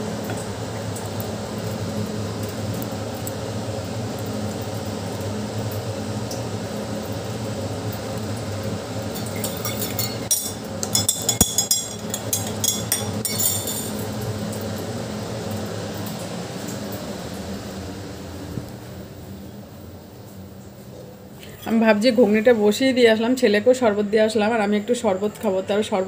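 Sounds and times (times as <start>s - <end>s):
metal spoon clinking on steel tumbler: 9.2s - 14.0s.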